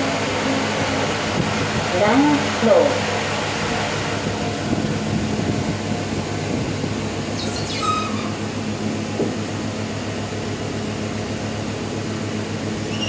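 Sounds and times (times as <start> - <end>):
elevator humming and rumbling: 0.0 - 13.0
brief high squeak: 7.3 - 8.4.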